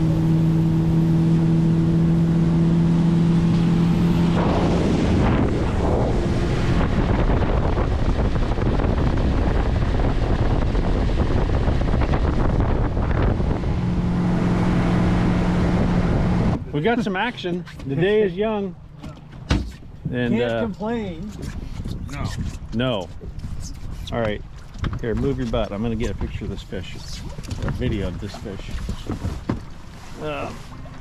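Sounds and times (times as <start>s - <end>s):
boat engine humming: 0.0s - 31.0s
wind buffeting microphone: 3.4s - 16.8s, 21.2s - 29.8s.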